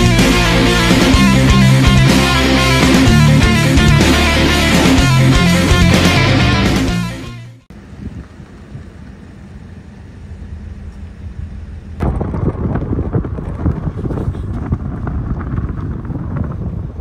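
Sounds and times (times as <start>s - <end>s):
moving car hum: 0.0s - 17.0s
wind buffeting microphone: 7.8s - 9.2s, 10.4s - 17.0s.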